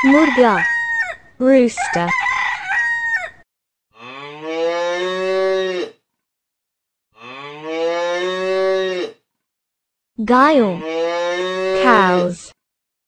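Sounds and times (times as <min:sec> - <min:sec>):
rooster crowing: 0:00.0 - 0:03.4
cow mooing: 0:04.0 - 0:06.0, 0:07.2 - 0:09.2, 0:10.8 - 0:12.3.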